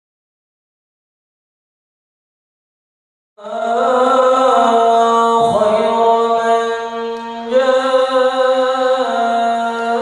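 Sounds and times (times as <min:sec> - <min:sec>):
man chanting through loudspeaker: 0:03.4 - 0:10.0.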